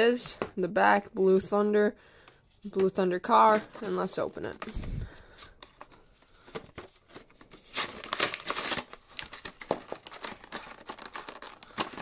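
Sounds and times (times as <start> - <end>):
plastic crinkling: 4.5 - 12.0
cardboard tearing: 6.8 - 12.0.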